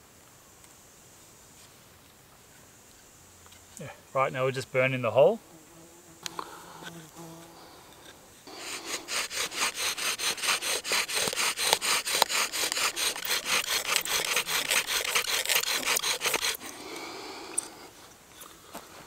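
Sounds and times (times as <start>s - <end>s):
bow drill spindle grinding: 8.0s - 16.7s.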